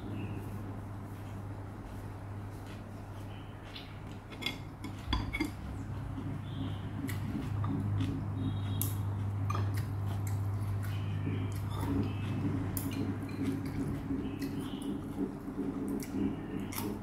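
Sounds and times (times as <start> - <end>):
person chewing: 2.7 - 17.0
low hum: 3.3 - 17.0.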